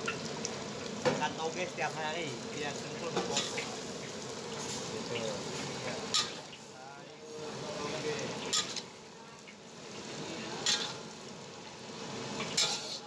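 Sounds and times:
vegetables sizzling in a wok: 0:00.0 - 0:13.0
metal spatula scraping wok: 0:06.1 - 0:06.5, 0:08.4 - 0:08.9, 0:10.6 - 0:11.0, 0:12.4 - 0:13.0.

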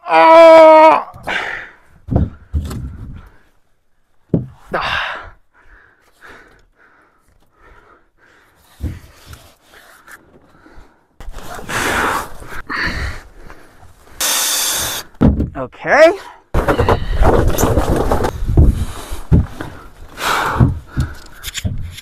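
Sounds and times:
sharp knocks and thumps: 0:02.1 - 0:03.2, 0:04.3 - 0:04.6, 0:15.2 - 0:15.6, 0:16.6 - 0:19.8, 0:20.5 - 0:22.0.

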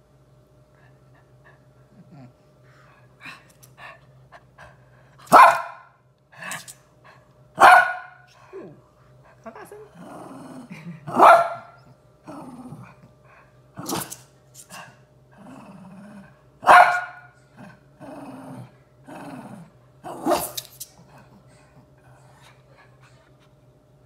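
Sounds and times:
dog barking: 0:05.3 - 0:05.9, 0:07.6 - 0:08.3, 0:11.1 - 0:11.8, 0:16.6 - 0:17.3
dogs growling: 0:09.8 - 0:14.2, 0:14.8 - 0:16.5, 0:17.4 - 0:23.2.

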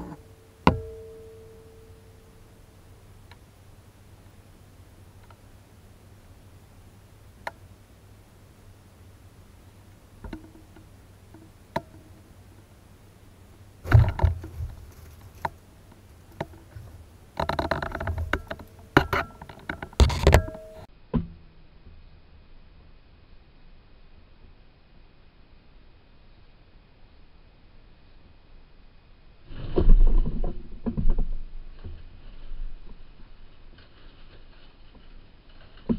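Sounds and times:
knocks and thumps on camera: 0:13.8 - 0:15.6, 0:19.9 - 0:20.6.

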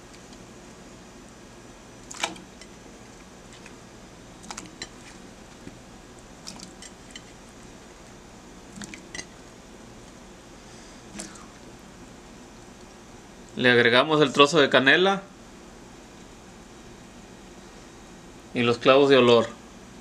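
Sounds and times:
squash chunks plopping into water: 0:02.1 - 0:02.5.

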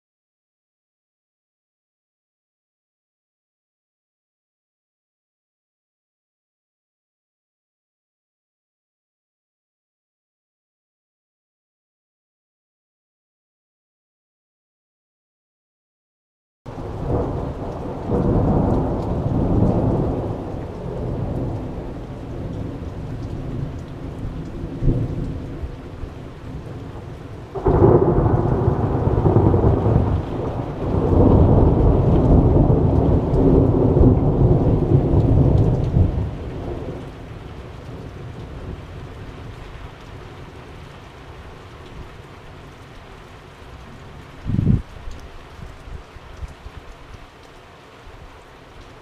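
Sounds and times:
thunder rolling: 0:16.8 - 0:25.6, 0:26.5 - 0:37.0.

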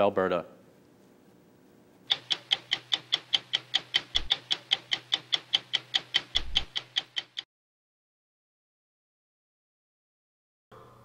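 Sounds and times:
stopwatch ticking: 0:02.1 - 0:07.4.

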